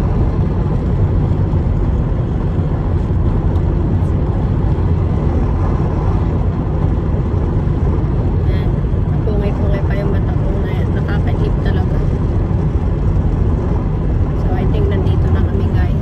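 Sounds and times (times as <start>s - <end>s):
car cabin road and engine rumble: 0.0s - 16.0s.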